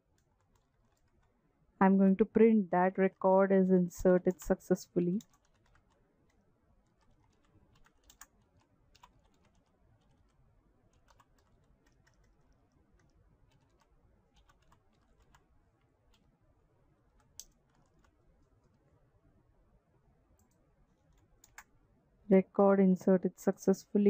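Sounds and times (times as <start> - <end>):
typing on keyboard: 0.2 - 1.3, 5.2 - 6.0, 6.8 - 15.5, 17.1 - 18.8, 20.4 - 21.7.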